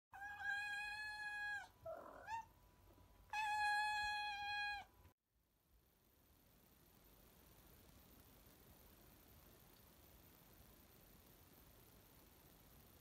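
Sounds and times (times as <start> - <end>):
cat meowing: 0.2 - 2.5, 3.3 - 4.9.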